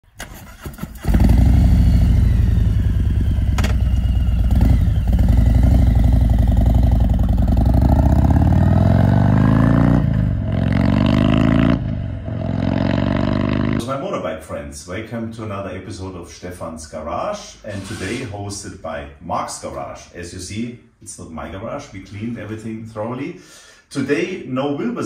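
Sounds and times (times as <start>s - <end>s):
motorcycle engine revving: 0.2s - 13.9s
motorcycle engine throbbing: 0.9s - 13.8s.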